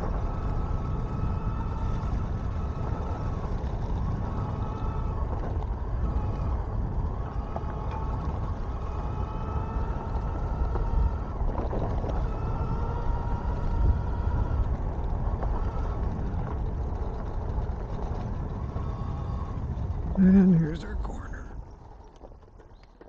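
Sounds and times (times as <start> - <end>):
electric motor whine: 0.0 - 20.7
wind and tyre rumble: 0.0 - 23.0.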